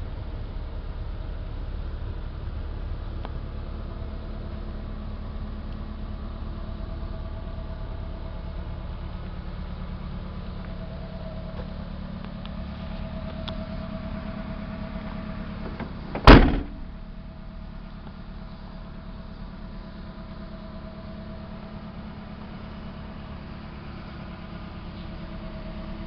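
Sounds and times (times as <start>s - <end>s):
steady low hum: 1.6s - 26.0s
tailgate slamming shut: 15.5s - 17.1s.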